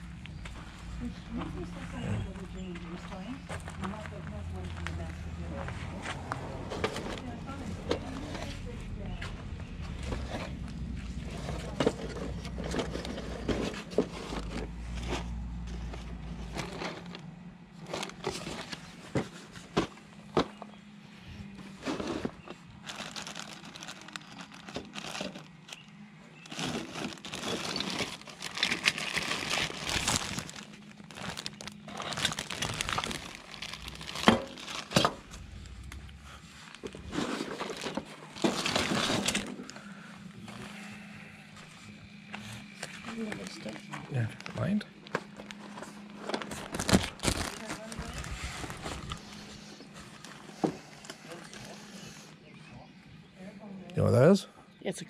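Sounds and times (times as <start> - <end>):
cardboard and plastic bags crinkling: 6.6 - 20.8, 21.5 - 40.7, 42.1 - 52.0.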